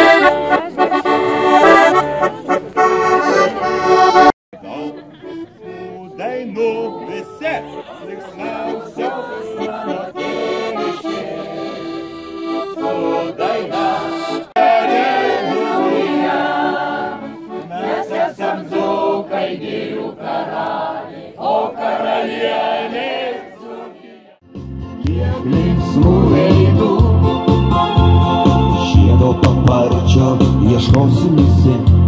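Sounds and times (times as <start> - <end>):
accordion playing folk song: 0.0 - 21.0, 24.5 - 32.0
crowd singing along: 6.0 - 24.4, 25.0 - 27.8.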